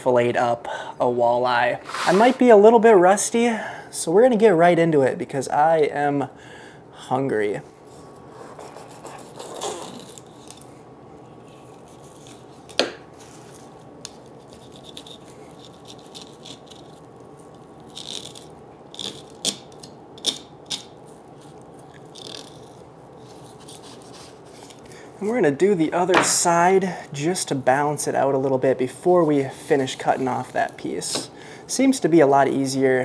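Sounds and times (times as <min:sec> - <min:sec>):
knife scraping fish bones: 0:14.0 - 0:24.8.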